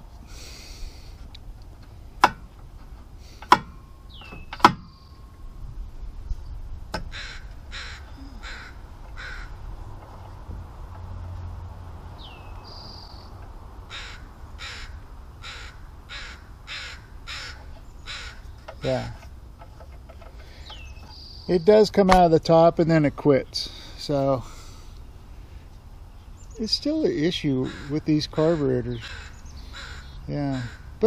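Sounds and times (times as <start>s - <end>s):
bird calling: 4.0s - 5.4s, 7.0s - 9.6s, 12.2s - 21.8s, 26.1s - 31.0s.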